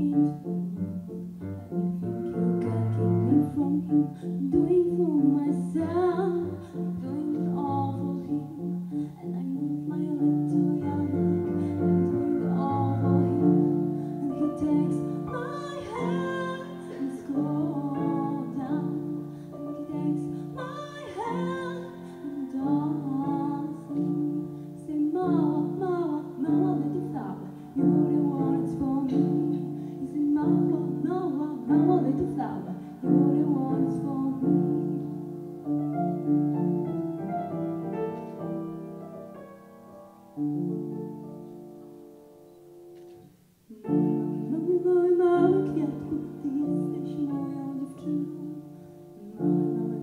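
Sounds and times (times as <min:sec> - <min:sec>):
girl singing: 0:00.0 - 0:00.6, 0:02.4 - 0:35.2, 0:43.7 - 0:50.0
piano chords: 0:00.0 - 0:50.0.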